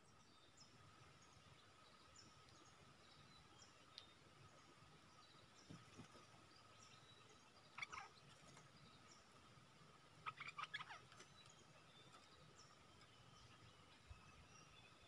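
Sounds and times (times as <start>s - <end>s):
bulbul calling: 7.7s - 8.3s, 10.2s - 14.7s.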